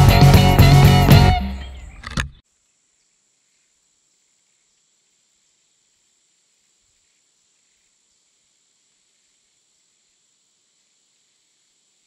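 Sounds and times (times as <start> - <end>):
music track: 0.0 - 1.9
faint high hiss: 0.0 - 12.0.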